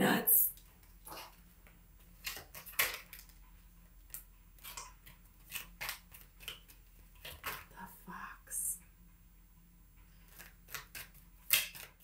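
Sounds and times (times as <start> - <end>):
cards being shuffled: 2.1 - 3.4, 4.1 - 7.7, 10.2 - 12.0.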